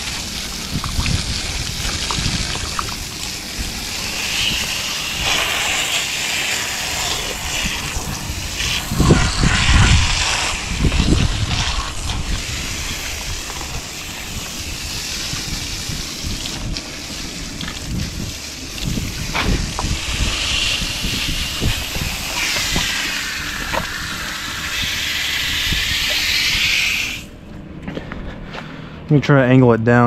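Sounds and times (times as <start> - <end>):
hose water spraying on metal coil: 0.0 - 27.3.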